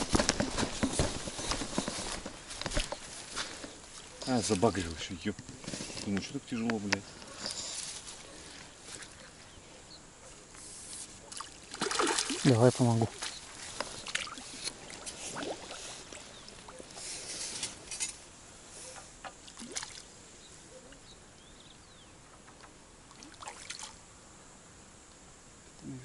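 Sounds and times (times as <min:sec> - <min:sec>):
fish splashing in water: 0:11.3 - 0:17.0, 0:19.5 - 0:20.1, 0:23.1 - 0:24.0.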